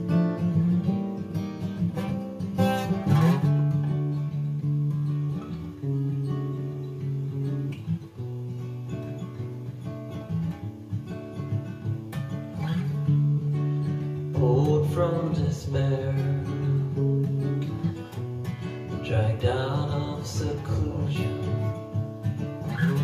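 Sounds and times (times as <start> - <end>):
acoustic guitar strumming: 0.0 - 23.0
man singing: 14.3 - 17.3, 18.9 - 21.8.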